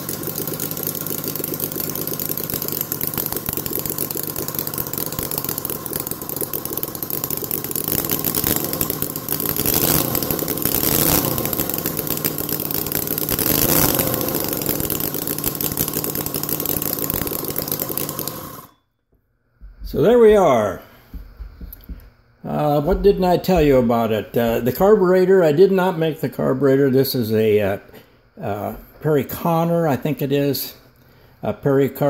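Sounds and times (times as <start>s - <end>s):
model engine running and revving: 0.0s - 18.7s.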